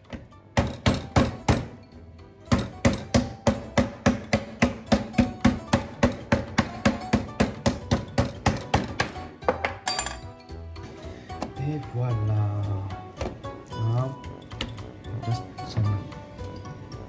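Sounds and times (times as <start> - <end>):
meat mallet pounding steak: 0.1 - 1.8, 2.4 - 9.8.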